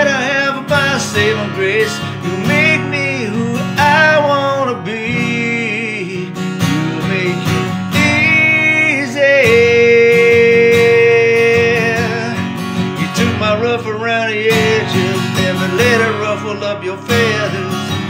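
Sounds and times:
acoustic guitar strumming: 0.0s - 18.0s.

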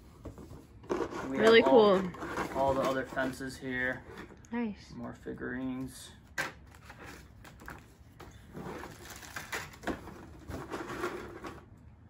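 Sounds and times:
plastic bags and paper rustling: 0.9s - 4.2s, 6.6s - 11.7s.

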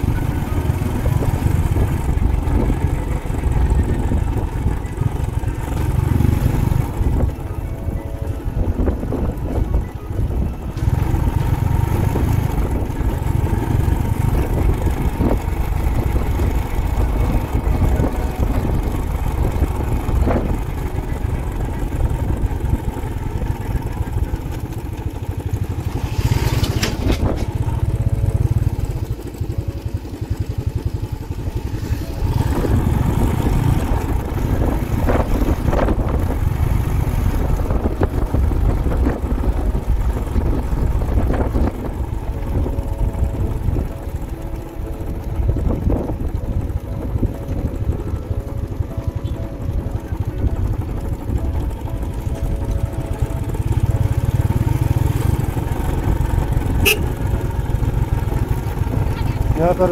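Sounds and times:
motorcycle running: 0.0s - 59.9s
wind buffeting microphone: 0.0s - 59.9s.

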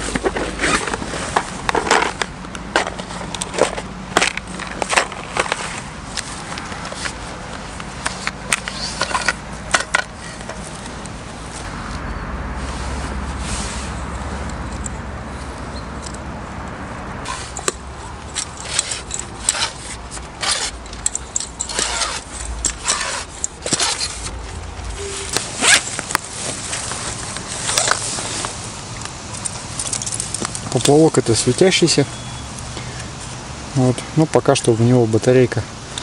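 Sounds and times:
zipper of rod case: 8.0s - 9.4s, 18.4s - 21.0s, 21.6s - 24.4s, 25.0s - 27.0s
fishing tackle clicks and rustles: 17.3s - 31.8s.

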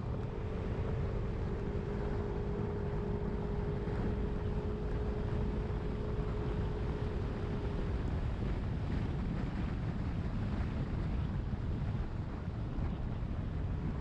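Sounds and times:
scooter engine droning: 0.0s - 8.6s
wind buffeting microphone: 0.0s - 14.0s.

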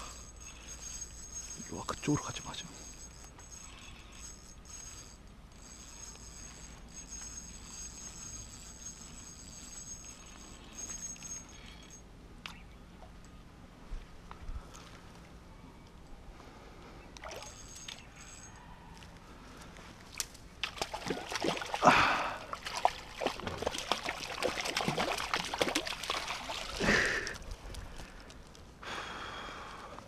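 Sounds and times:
water sloshing: 20.1s - 27.8s
fish splashing in water: 20.6s - 26.9s.

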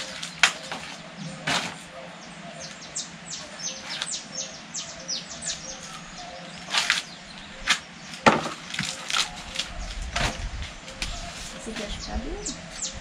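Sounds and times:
corn husks ripping: 6.6s - 7.8s, 8.4s - 11.7s.

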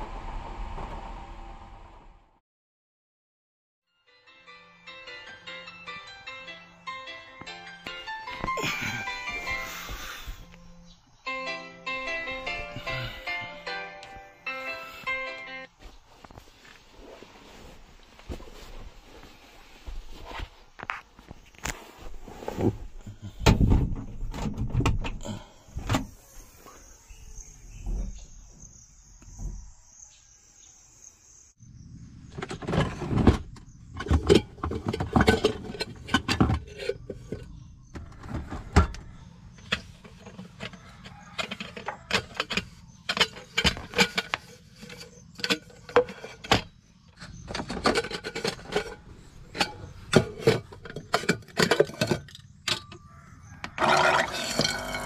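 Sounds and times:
gear handling clicks and knocks: 39.6s - 53.0s.

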